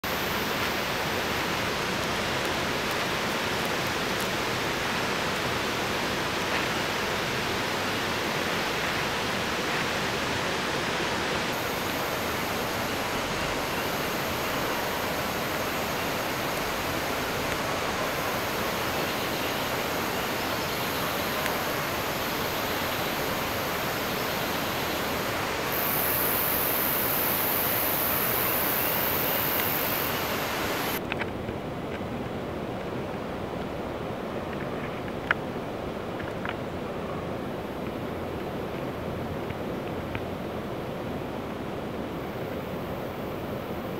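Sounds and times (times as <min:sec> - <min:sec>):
rushing outdoor hiss: 0:00.0 - 0:43.9
high thin whine: 0:11.4 - 0:31.0.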